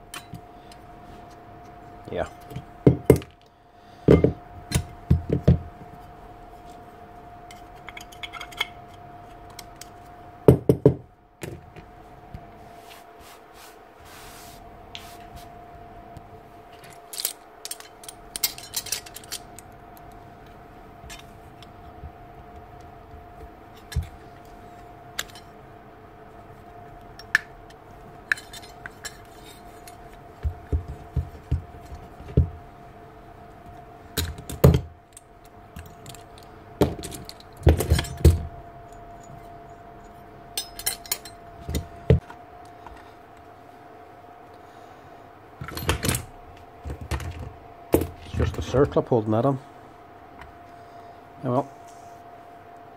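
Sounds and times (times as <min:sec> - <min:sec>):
faint hum: 0:00.0 - 0:52.9
metal tools clinking on workbench: 0:07.5 - 0:08.8, 0:17.0 - 0:19.6, 0:28.3 - 0:30.0, 0:35.8 - 0:41.4.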